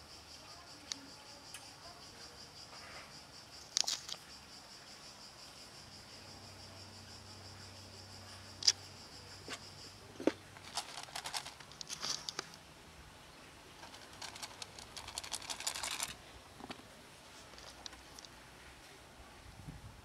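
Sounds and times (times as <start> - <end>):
high insect chirr: 0.0 - 19.3
plastic rattling and rustling: 10.2 - 12.6, 13.8 - 16.8, 17.4 - 18.3.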